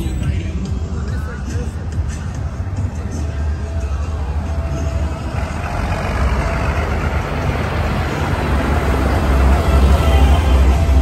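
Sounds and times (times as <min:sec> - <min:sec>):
tractor diesel engine driving past: 0:02.8 - 0:11.0.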